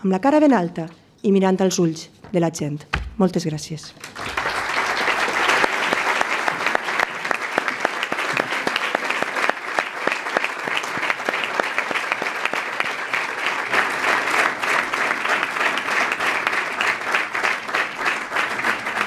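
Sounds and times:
audience applauding: 4.0s - 19.0s.

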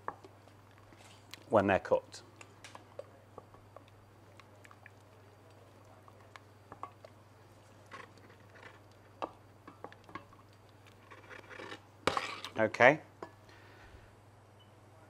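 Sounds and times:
wooden spoon scraping a saucepan: 6.1s - 12.6s.

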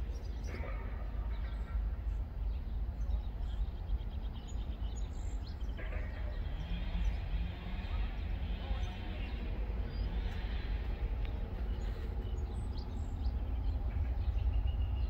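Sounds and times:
steady low rumble: 7.0s - 15.0s.

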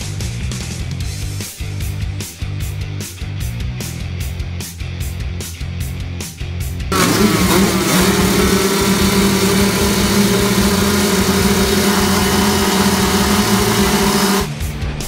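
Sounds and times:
motorbike engines revving high: 6.9s - 14.5s.

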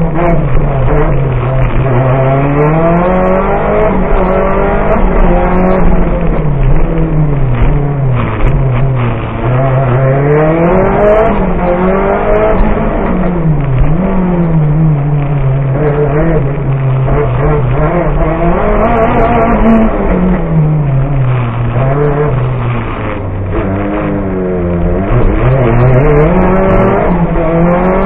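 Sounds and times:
car engine revving: 0.0s - 28.0s.

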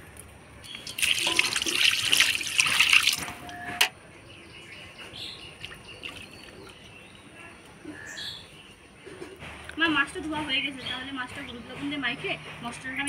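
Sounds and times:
water splashing and running: 0.6s - 3.6s, 5.5s - 6.9s.

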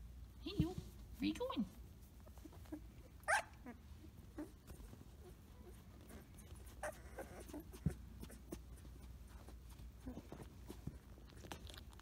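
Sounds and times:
puppy whimpering: 2.2s - 11.6s.

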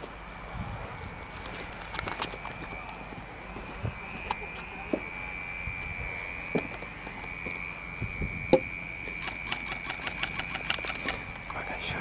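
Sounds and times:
high-pitched whine and hiss: 0.0s - 12.0s
sharp clicks: 8.5s - 11.6s.

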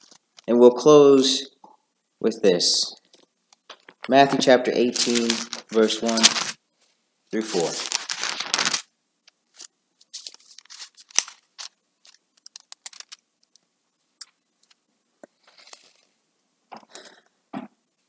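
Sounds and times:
pages being leafed through: 3.7s - 6.6s, 7.4s - 8.9s, 9.5s - 13.2s.

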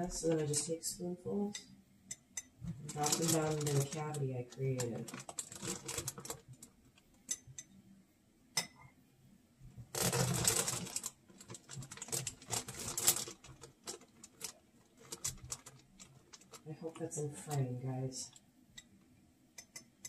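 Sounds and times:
plastic bag rustling: 2.6s - 6.8s, 9.8s - 18.3s
spoon clicking and scraping: 7.2s - 7.7s, 19.6s - 20.0s.

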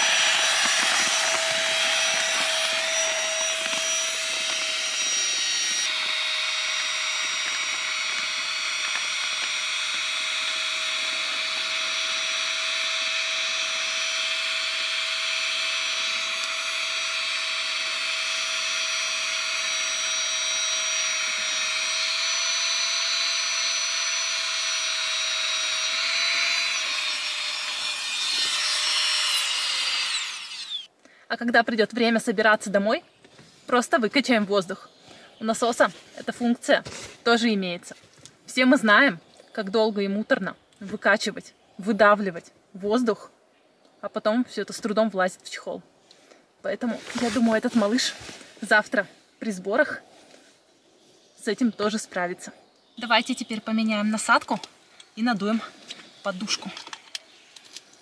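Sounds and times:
electric air pump whining: 0.0s - 30.9s.

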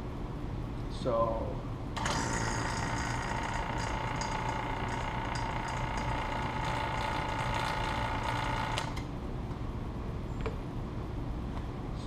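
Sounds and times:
vacuum pump humming and whining: 1.6s - 9.7s.

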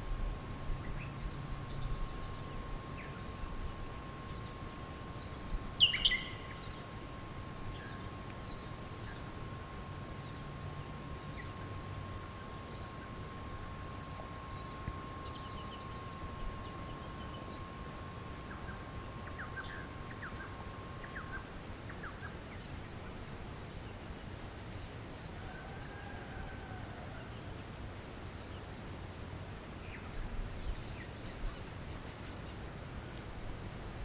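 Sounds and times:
steady low rumble: 0.0s - 24.3s
thin steady tone: 0.0s - 34.0s
bird calls and chirps: 0.5s - 9.4s, 10.0s - 13.7s, 14.5s - 22.9s, 29.8s - 32.6s
whistled bird call: 5.8s - 6.8s.

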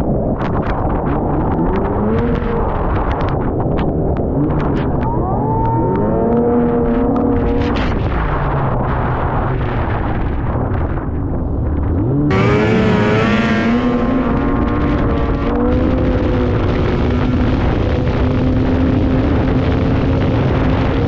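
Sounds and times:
snowmobile engine revving: 12.0s - 19.5s.

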